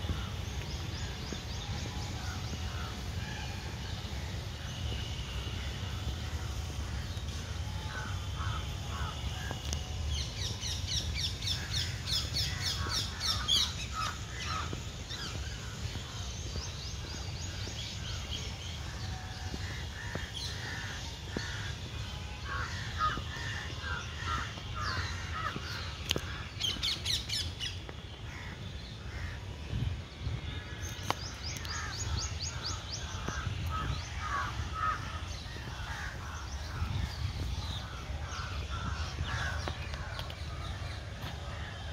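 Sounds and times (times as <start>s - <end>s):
steady low rumble: 0.0s - 41.9s
crows cawing: 7.8s - 9.6s, 10.9s - 27.4s, 31.6s - 40.8s.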